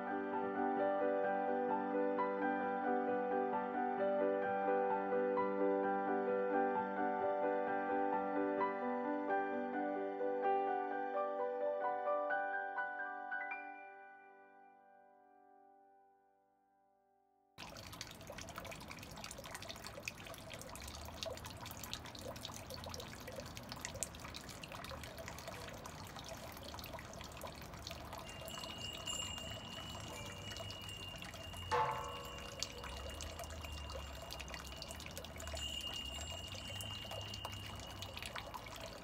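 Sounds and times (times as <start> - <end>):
stream trickling and dripping: 17.6 - 39.0
thin steady high tone: 27.4 - 39.0.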